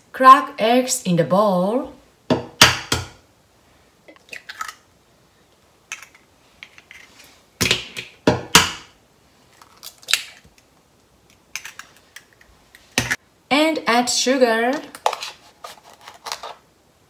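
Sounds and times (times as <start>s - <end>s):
eggshells cracking: 9.6s - 12.5s.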